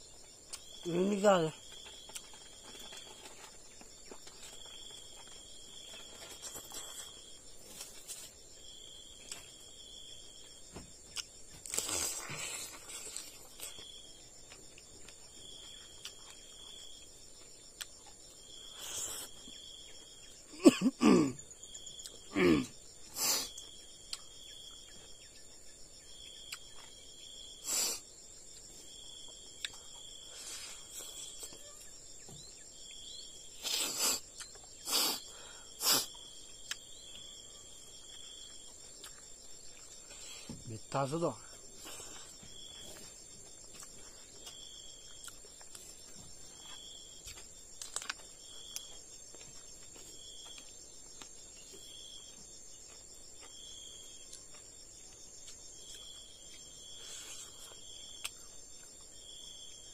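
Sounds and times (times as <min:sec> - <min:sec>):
insects buzzing: 0:00.0 - 0:59.9
pulsing high insect call: 0:00.0 - 0:59.9.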